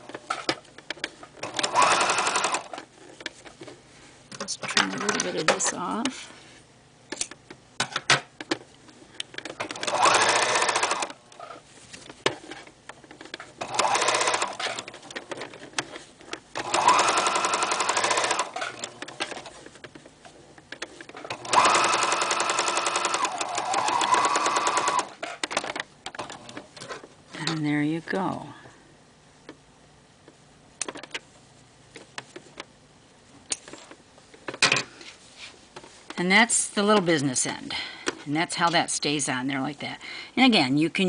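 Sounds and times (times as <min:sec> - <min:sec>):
sewing machine motor whine: 0:01.5 - 0:02.7, 0:09.7 - 0:11.1, 0:13.6 - 0:14.7, 0:16.6 - 0:18.9, 0:21.3 - 0:25.2.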